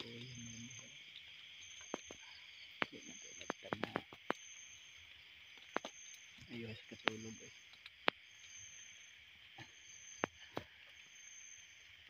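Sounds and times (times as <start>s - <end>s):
night insects buzzing: 0.0s - 12.0s
sharp clicks and snaps: 2.8s - 4.4s, 5.5s - 8.6s.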